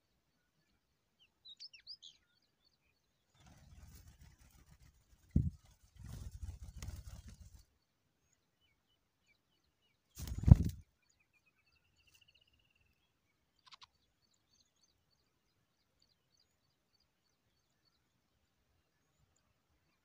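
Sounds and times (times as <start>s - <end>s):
nestlings peeping: 10.2s - 10.8s.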